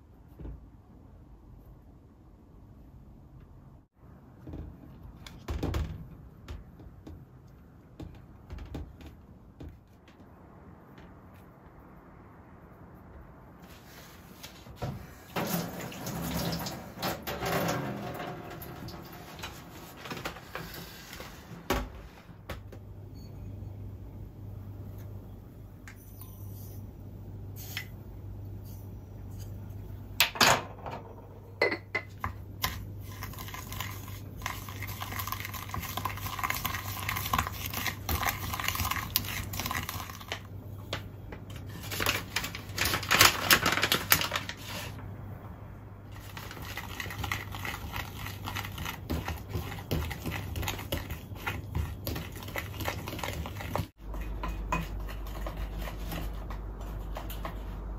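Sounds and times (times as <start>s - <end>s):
low steady hum: 21.2s - 57.9s.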